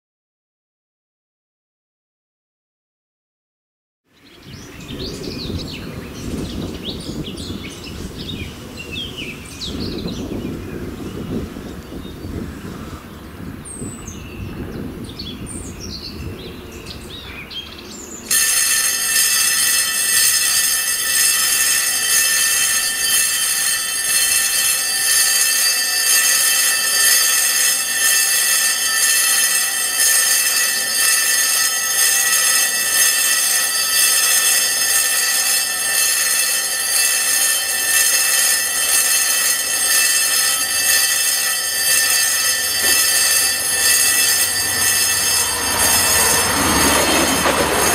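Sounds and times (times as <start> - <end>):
level crossing warning bell ringing: 18.2 - 47.9.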